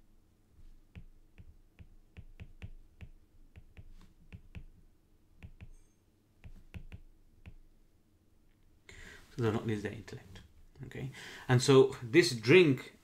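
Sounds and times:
stylus tapping on tablet: 0.9 - 7.7.

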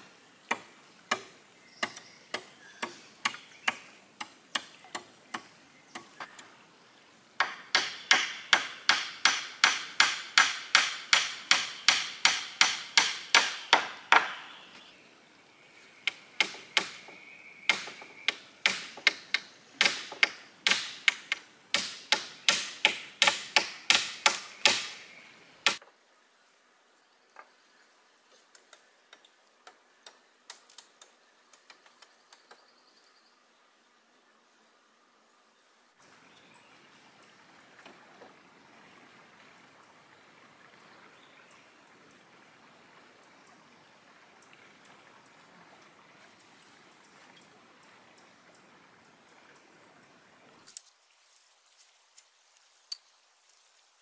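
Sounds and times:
blade chopping wood: 17.7 - 25.0.

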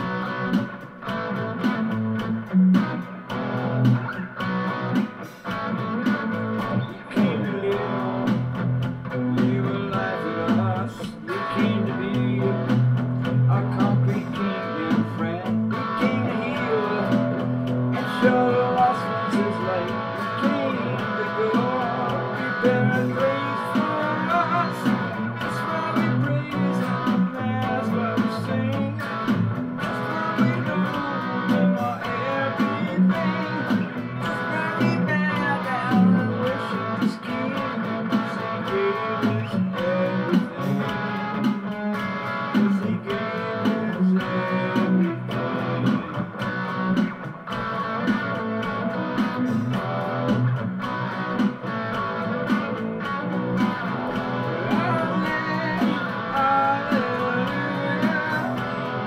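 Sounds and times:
electric guitar lead: 0.0 - 59.0.

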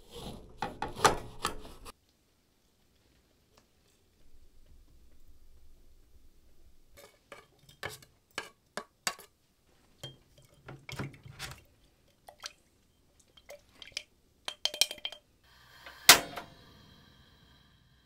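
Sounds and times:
faint steady hiss: 1.5 - 18.0
kitchenware clinking and knocking: 14.5 - 15.3.

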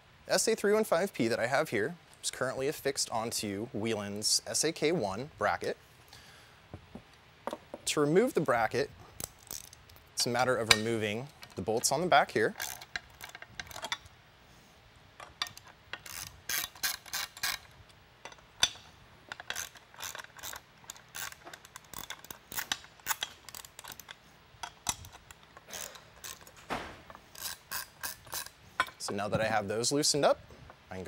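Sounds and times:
ratchet wrench clicking: 9.2 - 9.8, 12.5 - 14.0, 15.2 - 26.6, 27.3 - 28.9.

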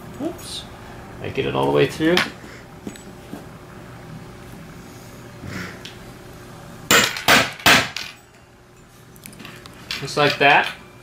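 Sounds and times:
hammer striking hole punch: 6.9 - 8.0.

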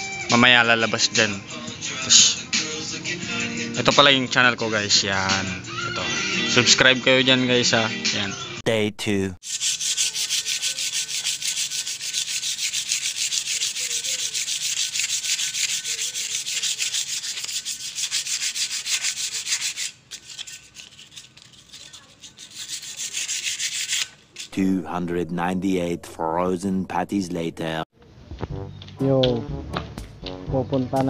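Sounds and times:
sandpaper scraping metal: 9.4 - 24.7.

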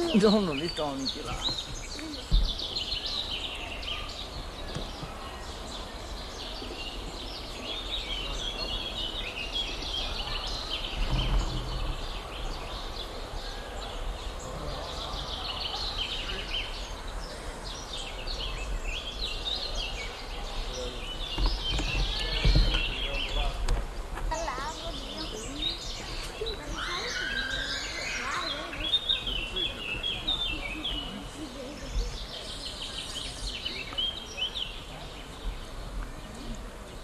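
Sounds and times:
small birds chirping: 0.0 - 37.0
low microphone rumble: 1.2 - 26.9
low bump: 10.8 - 13.2.

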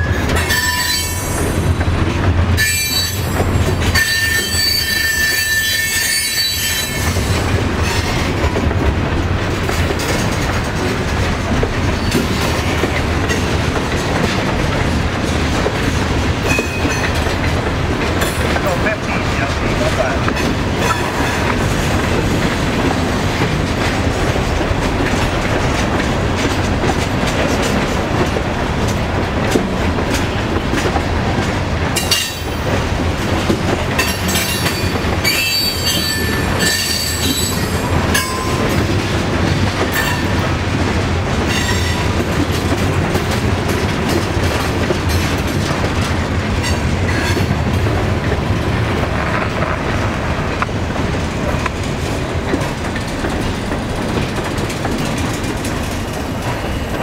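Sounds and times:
train wheels clattering over rail: 0.0 - 57.0
high wheel squeal: 0.5 - 1.4, 2.6 - 3.3, 4.0 - 7.1, 34.7 - 37.7.

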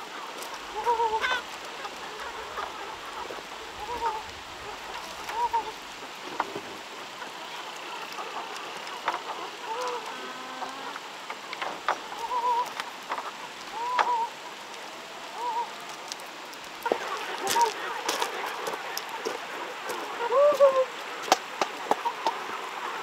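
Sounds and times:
chickens clucking: 0.0 - 23.0
steady rushing hiss: 0.0 - 23.0.

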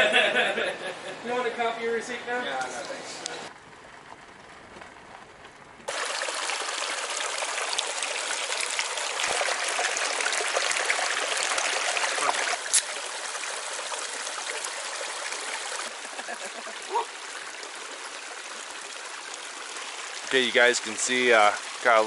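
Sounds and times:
creek water rushing over rocks: 5.9 - 22.0
beer can opening crack: 12.7 - 12.9.

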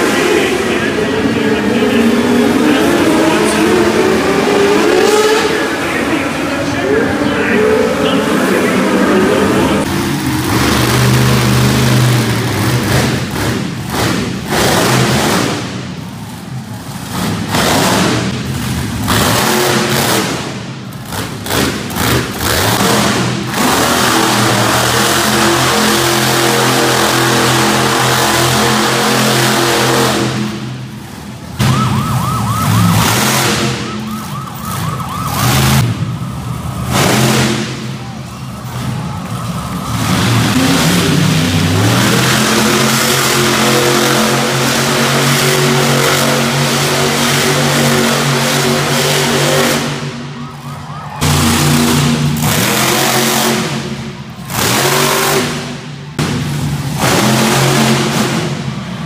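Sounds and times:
truck engine revving: 0.0 - 59.0.

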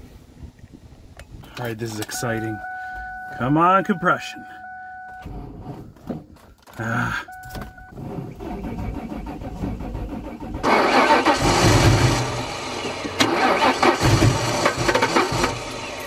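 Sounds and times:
engine cranking without firing: 5.0 - 16.0.

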